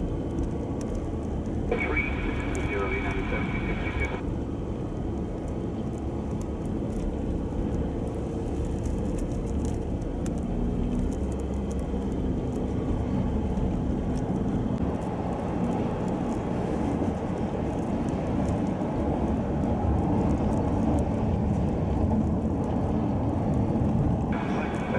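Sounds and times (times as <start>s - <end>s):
vehicle driving on snowy road: 0.0s - 24.9s
faint hum: 1.7s - 4.2s, 24.4s - 24.9s.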